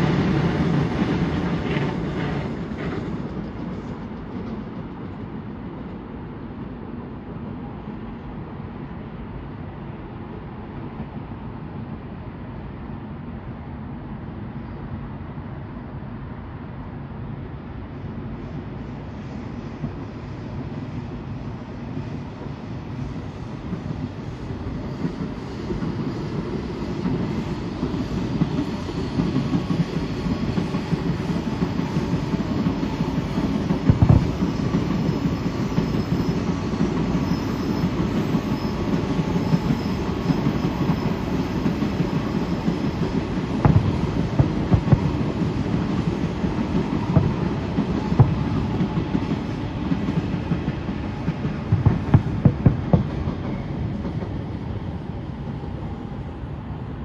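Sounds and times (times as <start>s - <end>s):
fireworks crackling and rumbling: 30.4s - 37.4s, 39.4s - 53.5s
fireworks shells bursting bangs: 33.7s - 35.2s, 43.5s - 46.2s, 46.8s - 48.9s.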